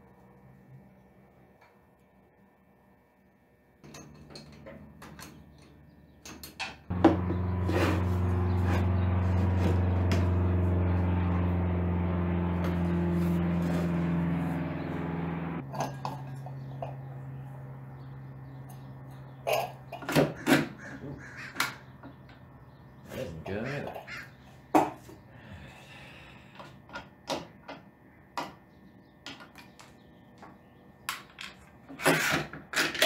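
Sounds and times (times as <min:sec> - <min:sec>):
tools and metal parts clinking: 0:03.8 - 0:06.8
machine drone: 0:06.9 - 0:22.8.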